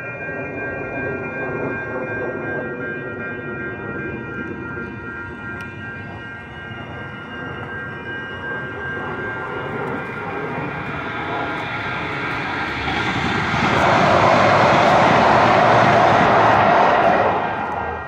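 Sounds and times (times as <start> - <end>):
jet airliner engines whining: 0.0 - 18.0
light-rail train rushing past: 0.0 - 18.0.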